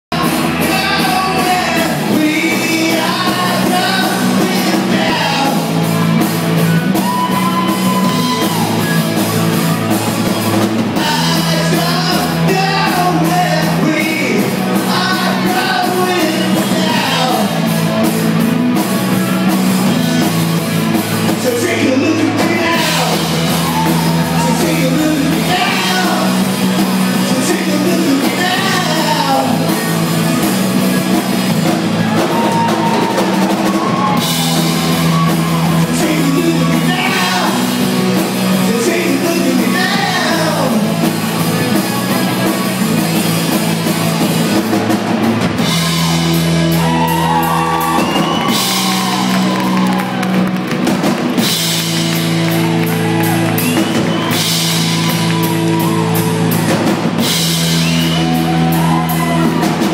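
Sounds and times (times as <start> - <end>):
drum kit: 0.0 - 59.9
electric bass: 0.0 - 59.9
person singing: 0.1 - 5.8, 11.0 - 17.7, 21.3 - 26.6, 27.2 - 29.8, 32.2 - 37.8, 38.5 - 41.0
electric guitar: 0.1 - 59.9.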